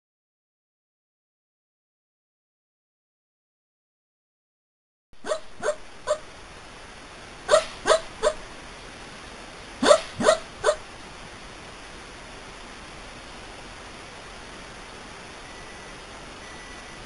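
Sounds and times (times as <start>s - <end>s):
steady hiss: 5.2s - 17.0s
dog giving short barks: 9.8s - 10.8s.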